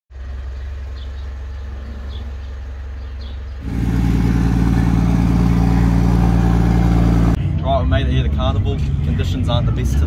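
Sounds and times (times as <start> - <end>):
vehicle engine idling: 0.1 - 7.6.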